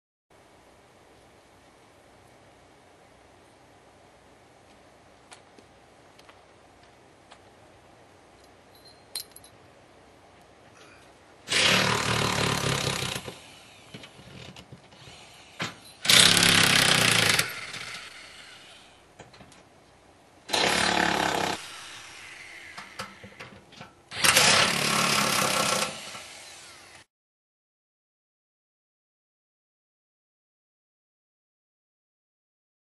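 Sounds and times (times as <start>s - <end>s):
power tool running: 11.5s - 19.0s, 20.5s - 23.4s, 24.1s - 27.1s.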